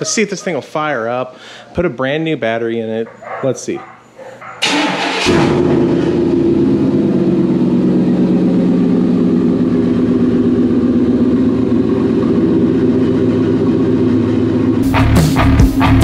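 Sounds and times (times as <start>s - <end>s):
engine cranking: 4.6s - 5.7s
engine idling: 4.6s - 15.6s.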